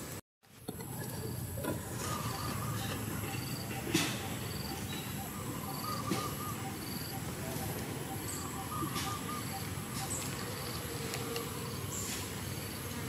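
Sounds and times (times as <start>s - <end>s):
insects chirping: 0.8s - 13.0s
faint warbling call: 1.8s - 10.7s.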